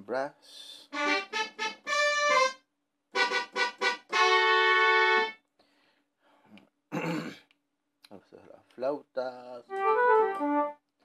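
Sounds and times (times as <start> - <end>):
synthesized brass notes: 0.9 - 5.4, 9.7 - 10.8.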